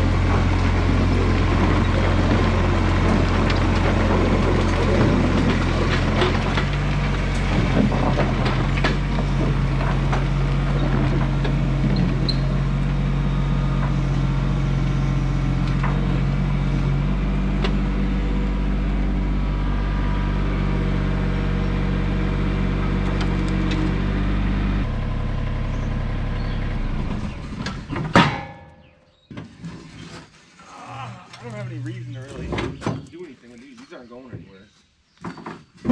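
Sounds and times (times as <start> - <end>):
excavator diesel engine running: 0.0 - 28.6, 30.8 - 32.8
tracks clanking on steel deck: 26.5 - 29.9
sharp metal clank: 28.1 - 29.0.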